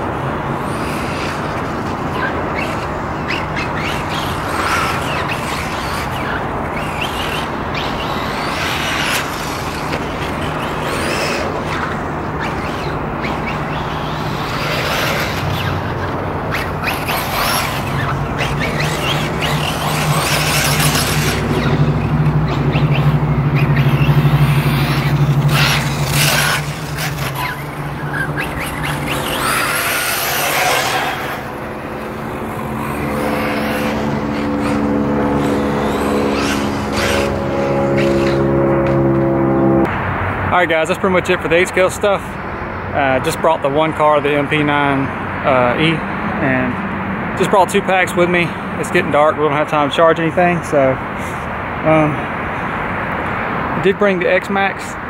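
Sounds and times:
tyres scrabbling on dirt: 0.0 - 39.3
electric motor whine: 0.0 - 39.9.

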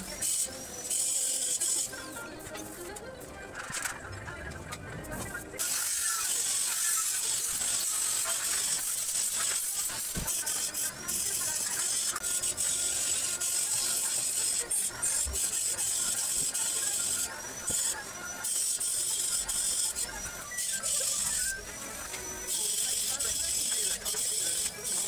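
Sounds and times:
welding arc crackling: 5.6 - 25.0.

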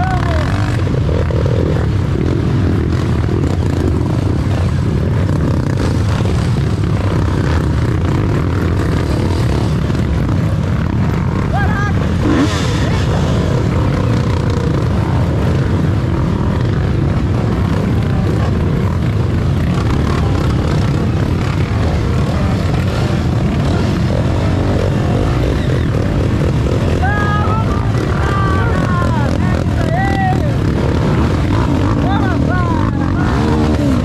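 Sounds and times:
voices: 0.0 - 2.2, 9.2 - 34.0
motorcycle engines droning: 0.0 - 34.0.

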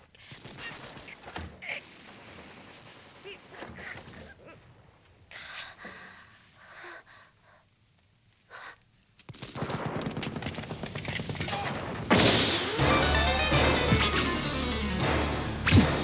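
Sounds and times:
automatic gunfire: 9.3 - 12.8
loud crash: 11.5 - 16.0.

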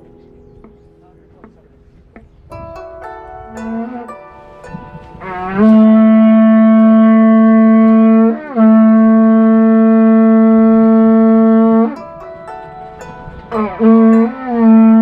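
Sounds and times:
conch-shell trumpet blowing: 4.9 - 15.0.

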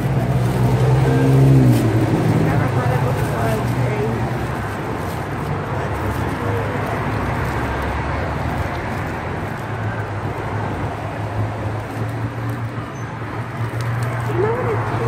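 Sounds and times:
cellophane wrapper crinkling: 0.0 - 15.0
traffic rumble: 0.0 - 15.0.

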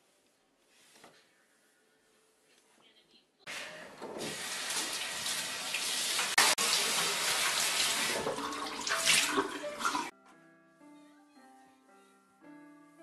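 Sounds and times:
tap water running and splashing: 4.0 - 10.1
soft piano music: 8.9 - 13.0.

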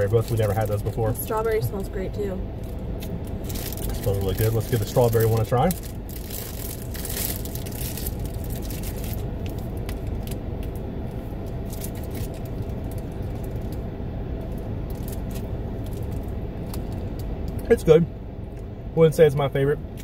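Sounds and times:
car engine hum from inside: 0.0 - 20.0
wrapper crinkling: 2.6 - 10.4.

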